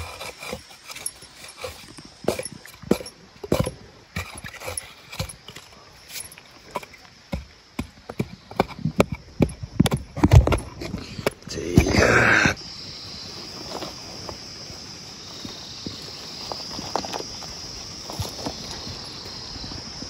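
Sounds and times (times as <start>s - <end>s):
pick striking and scraping clay: 0.0s - 12.4s.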